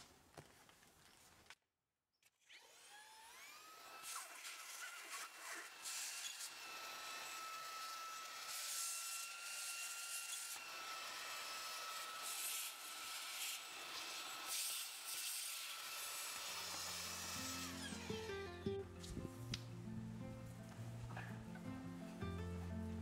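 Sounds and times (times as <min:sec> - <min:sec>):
stick vacuum motor whine: 0:02.5 - 0:18.6.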